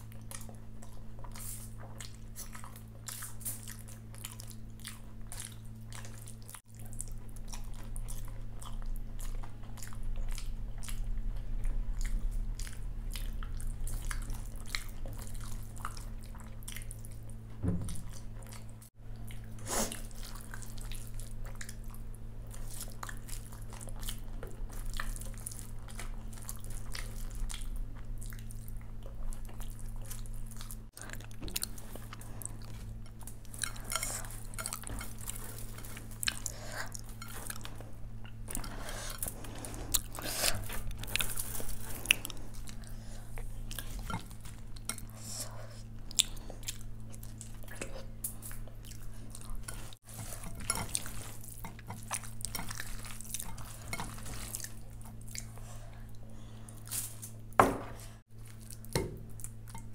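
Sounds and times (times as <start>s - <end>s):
wet chewing and crunching: 0.0s - 57.5s, 58.2s - 59.9s
low steady hum: 0.0s - 59.9s
rice squishing by hand: 47.0s - 55.6s.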